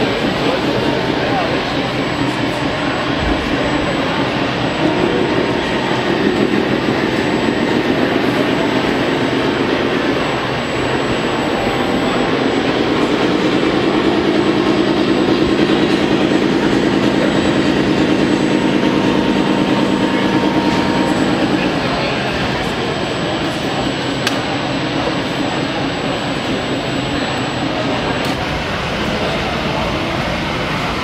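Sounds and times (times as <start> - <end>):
model motor drone: 0.0 - 29.0
noisy hall background: 0.0 - 31.0.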